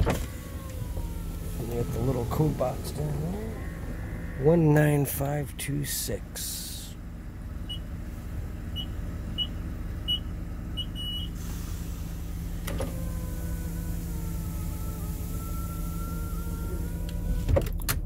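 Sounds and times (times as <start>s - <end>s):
electric motor whine: 0.0s - 4.6s, 12.4s - 17.5s
van engine idling: 0.0s - 18.0s.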